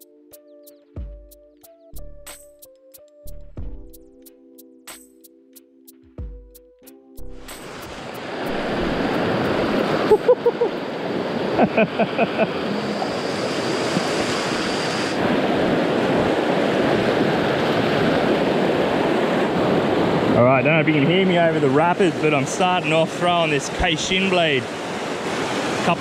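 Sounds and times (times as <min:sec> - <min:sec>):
water rushing over rocks: 0:07.5 - 0:26.0.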